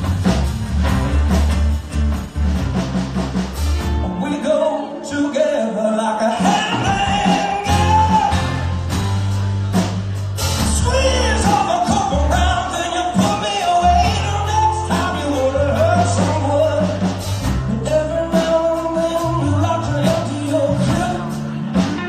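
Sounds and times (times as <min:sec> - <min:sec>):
band playing live: 0:00.0 - 0:22.0
person singing: 0:04.0 - 0:08.9, 0:10.5 - 0:22.0.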